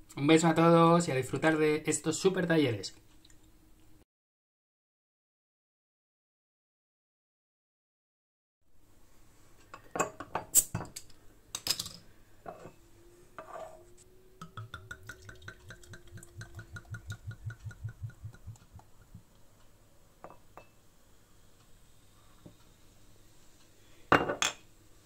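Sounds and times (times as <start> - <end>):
glass clinking: 9.8 - 10.9, 20.2 - 20.8, 24.1 - 24.6.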